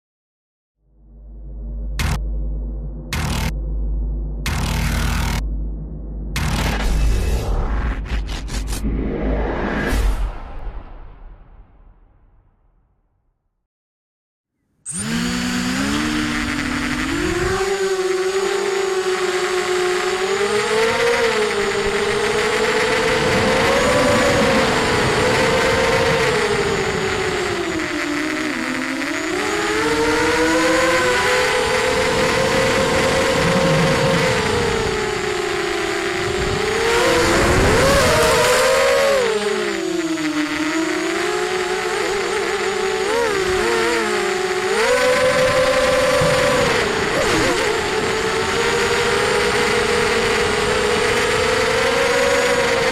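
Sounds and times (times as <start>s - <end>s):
noisy rush: 1.0s - 12.2s, 14.9s - 52.9s
quadcopter motors whining: 2.0s - 2.2s, 3.1s - 3.5s, 4.4s - 5.4s, 6.4s - 8.8s, 14.8s - 52.9s.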